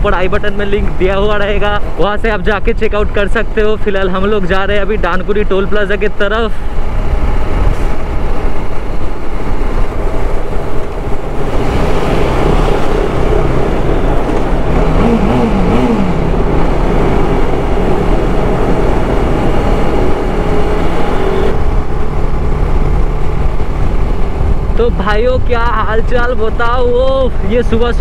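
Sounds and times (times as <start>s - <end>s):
wind rush on microphone: 0.0s - 28.0s
motorcycle engine cruising: 5.9s - 25.5s.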